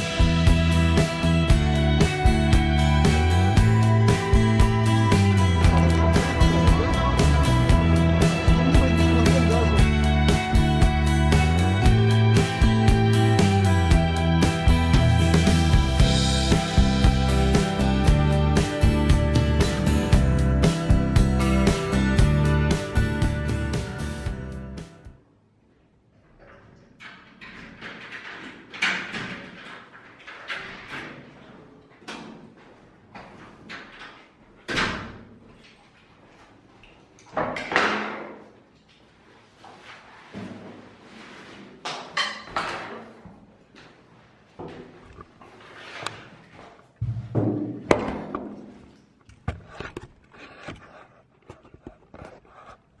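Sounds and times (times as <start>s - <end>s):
footsteps: 5.2s - 10.0s
glass door opening and shutting: 26.6s - 31.6s.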